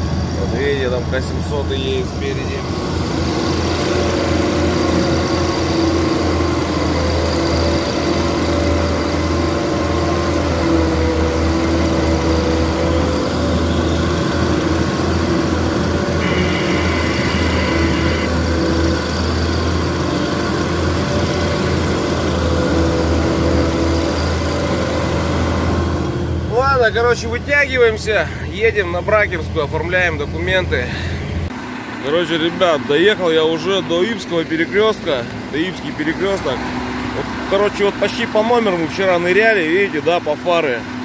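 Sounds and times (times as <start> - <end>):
diesel truck engine running: 0.0 - 41.0
brief higher tone: 16.2 - 18.4.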